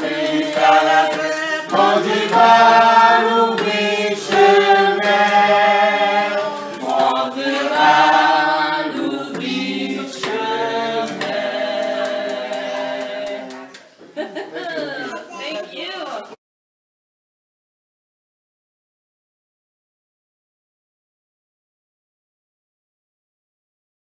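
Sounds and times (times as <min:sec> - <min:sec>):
group singing unaccompanied: 0:00.0 - 0:13.9.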